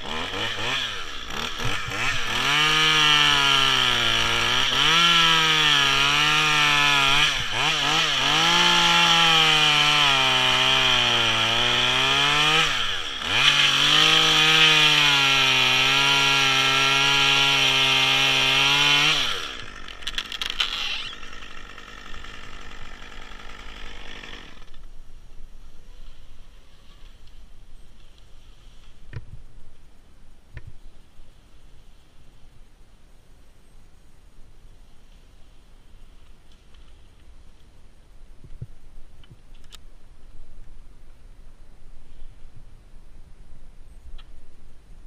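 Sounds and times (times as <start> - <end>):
chainsaw cutting wood: 0.0 - 24.9.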